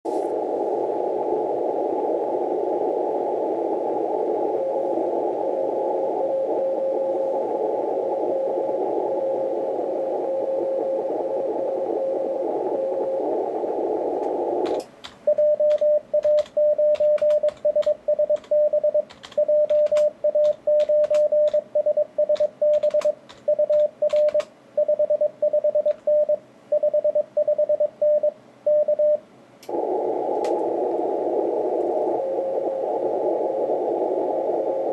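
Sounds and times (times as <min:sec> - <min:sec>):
radio band hiss: 0:00.1 - 0:15.0, 0:29.7 - 0:34.9
weak morse signal: 0:00.1 - 0:34.9.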